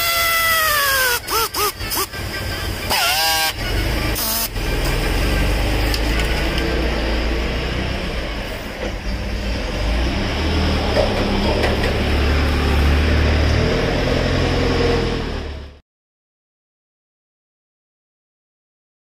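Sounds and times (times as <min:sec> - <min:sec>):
low mechanical rumble: 0:00.0 - 0:14.6.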